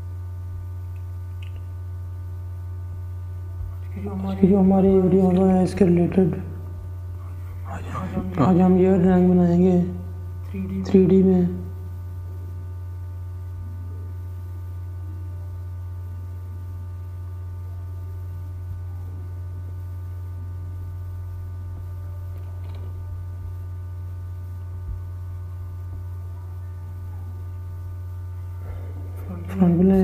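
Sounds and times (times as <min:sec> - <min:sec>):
low electrical hum: 0:00.0 - 0:30.0
faint clicks: 0:00.9 - 0:01.8.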